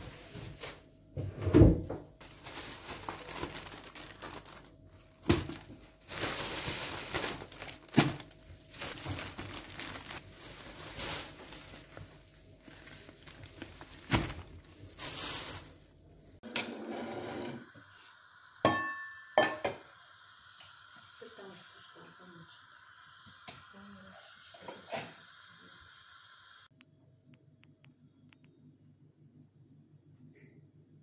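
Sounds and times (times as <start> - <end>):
plastic packaging crinkling: 2.2 - 16.1.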